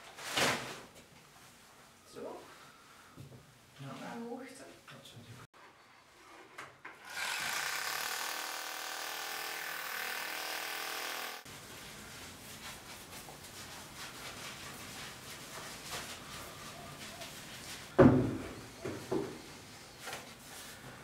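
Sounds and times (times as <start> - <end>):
electric drill boring into plaster: 7.0 - 11.4.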